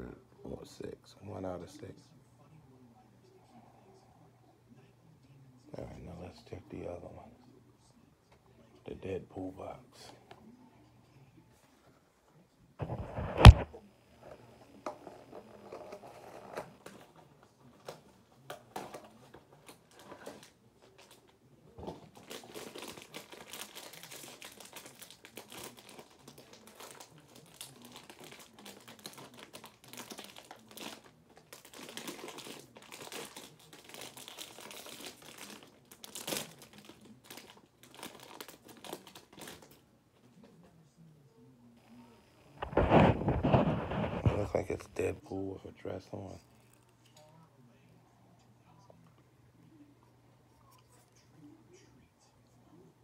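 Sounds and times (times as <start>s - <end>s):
packaging rustling and tearing: 12.8s - 13.7s, 18.7s - 39.8s, 42.6s - 45.0s.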